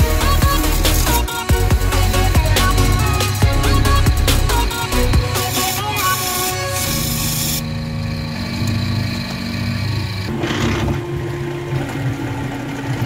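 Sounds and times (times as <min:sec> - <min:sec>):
hiss: 0:05.4 - 0:07.6.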